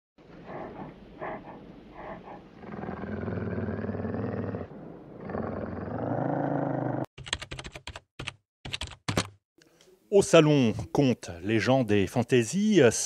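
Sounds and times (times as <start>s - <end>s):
deep animal growl: 0.2s - 7.1s.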